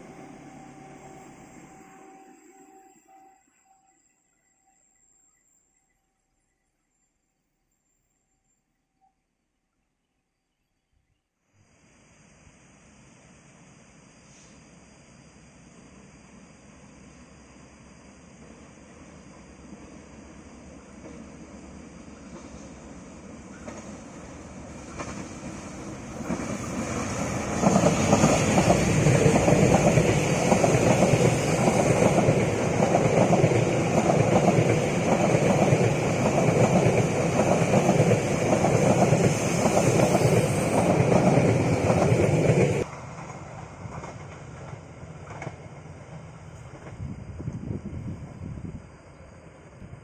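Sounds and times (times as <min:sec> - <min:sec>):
train wheels rumbling and clattering: 0:21.0 - 0:48.3.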